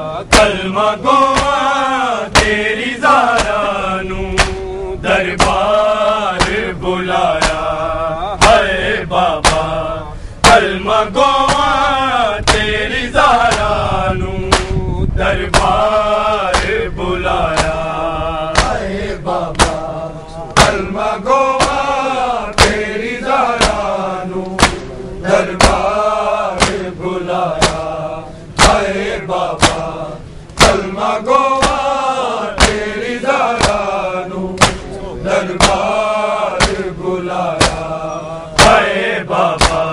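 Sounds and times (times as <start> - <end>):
men chanting a lament: 0.0 - 39.9
hands slapping chests: 1.3 - 1.6, 2.3 - 2.6, 3.3 - 3.6, 4.4 - 4.6, 5.4 - 5.7, 6.4 - 6.6, 7.3 - 7.7, 9.4 - 9.7, 11.4 - 11.7, 12.4 - 12.7, 13.5 - 13.7, 14.5 - 14.8, 16.5 - 16.8, 17.5 - 17.9, 18.5 - 18.8, 19.5 - 19.9, 20.5 - 20.9, 21.6 - 21.9, 22.5 - 22.8, 23.6 - 24.9, 25.6 - 25.9, 26.6 - 26.9, 27.6 - 27.9, 28.6 - 28.9, 29.6 - 29.9, 30.5 - 30.9, 31.6 - 31.9, 32.6 - 33.0, 33.6 - 34.0, 34.6 - 35.0, 35.6 - 36.0, 36.6 - 37.0, 37.6 - 37.9, 38.6 - 38.9, 39.6 - 39.9.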